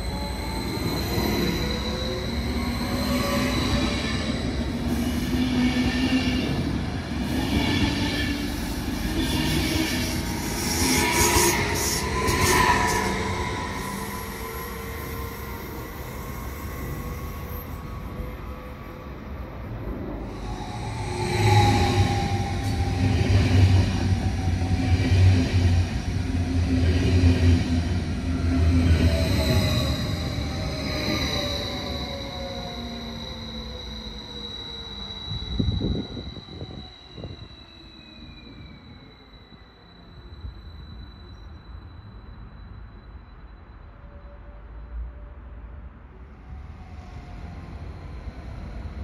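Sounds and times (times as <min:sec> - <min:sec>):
train wheels rumbling on rails: 0:00.0 - 0:39.0.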